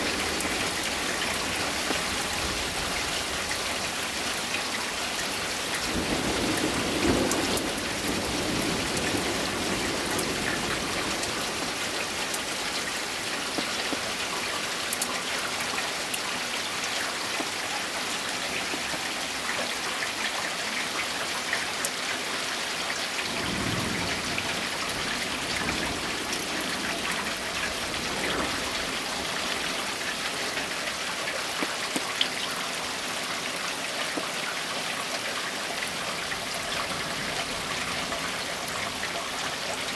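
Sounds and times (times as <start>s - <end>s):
heavy rain falling: 0.0s - 39.9s
thunder rumbling: 5.8s - 12.2s.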